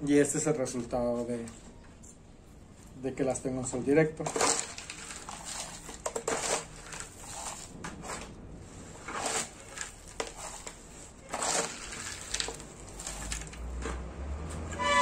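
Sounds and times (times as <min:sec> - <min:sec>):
gritty soil pouring and scraping: 0:04.2 - 0:14.0.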